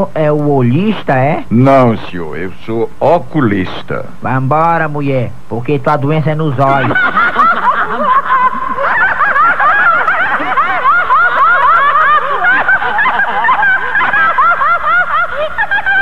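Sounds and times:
high-pitched voices laughing: 0:06.6 - 0:16.0.

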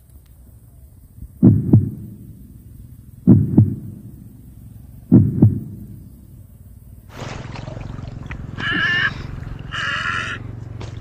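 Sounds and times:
heartbeat thumps: 0:01.4 - 0:02.4, 0:03.2 - 0:04.2, 0:05.1 - 0:06.1.

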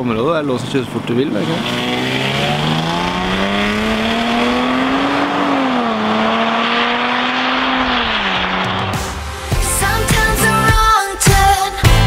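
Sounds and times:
car engine accelerating hard: 0:00.3 - 0:09.8.

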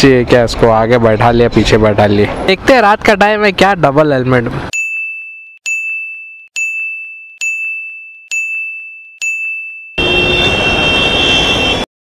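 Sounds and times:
high electronic ding: 0:04.7 - 0:10.0.

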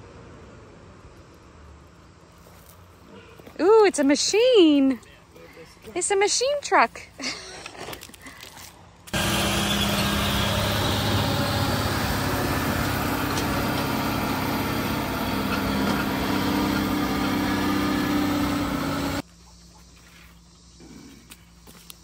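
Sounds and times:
diesel truck engine running: 0:09.2 - 0:19.2.

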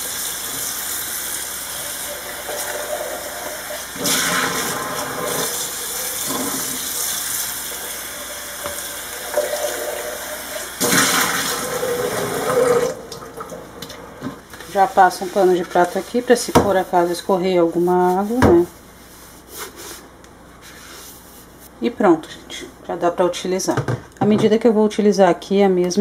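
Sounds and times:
tap water running and splashing: 0:00.0 - 0:14.8
water splashing into metal sink: 0:02.0 - 0:13.9.

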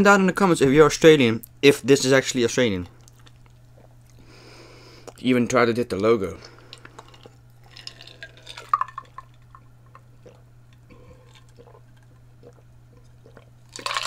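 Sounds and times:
person swallowing liquid: 0:03.0 - 0:04.3, 0:06.8 - 0:14.0
ice clicking against glass: 0:06.7 - 0:10.1, 0:13.7 - 0:14.0.

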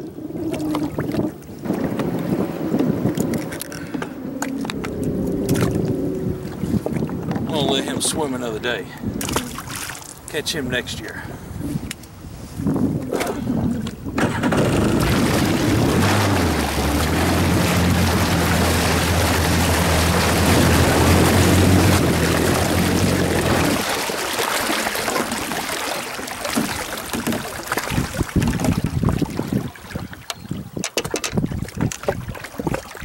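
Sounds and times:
jet ski engine running: 0:00.0 - 0:08.6, 0:13.2 - 0:27.5
wind buffeting: 0:00.0 - 0:09.8, 0:10.5 - 0:23.9, 0:27.5 - 0:32.8
water rushing and splashing: 0:00.0 - 0:11.1, 0:13.2 - 0:33.0.

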